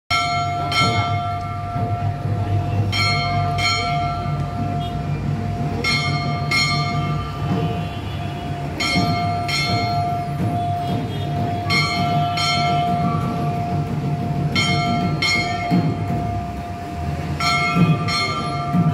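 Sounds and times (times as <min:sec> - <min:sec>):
temple bell ringing: 0:00.1 - 0:18.9.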